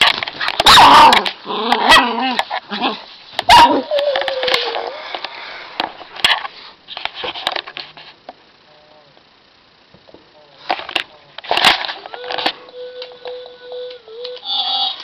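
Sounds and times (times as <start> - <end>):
puppy whining: 0.6 - 5.2
puppy barking and yipping: 3.5 - 3.9.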